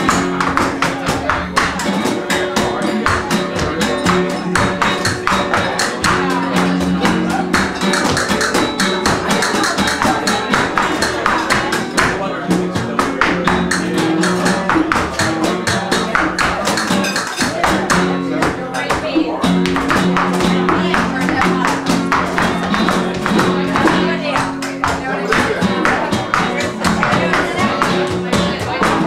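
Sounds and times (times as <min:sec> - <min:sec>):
hand percussion: 0:00.0 - 0:29.0
nylon-string guitar: 0:00.0 - 0:29.0
dancer's footwork taps: 0:17.6 - 0:29.0.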